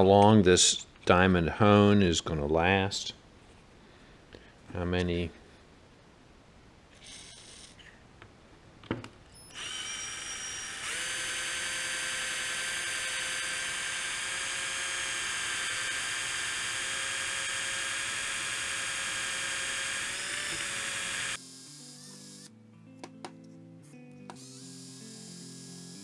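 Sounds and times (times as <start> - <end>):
cordless drill whining: 7.0 - 7.8, 9.4 - 22.5, 24.3 - 26.0.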